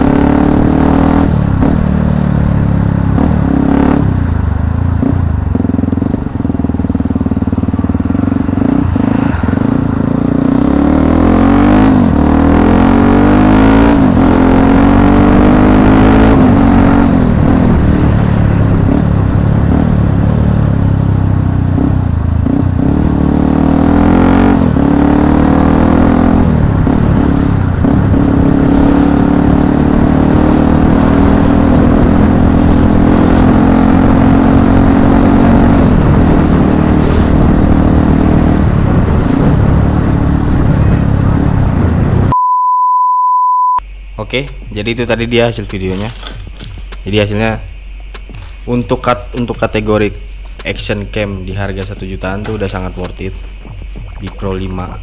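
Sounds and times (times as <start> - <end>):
motorcycle engine revving: 0.0 - 42.4.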